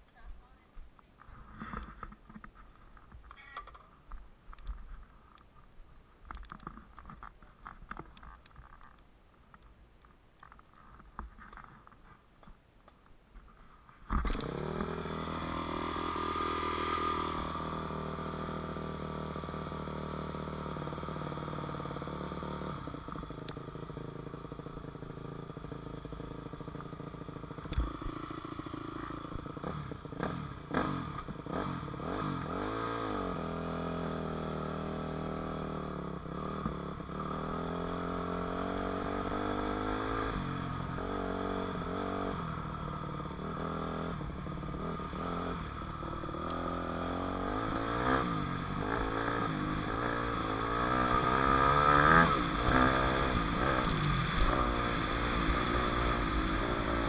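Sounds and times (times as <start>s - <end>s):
faint scrapes and clicks: 0.8s - 14.5s
dirt bike engine idling: 20.7s - 57.0s.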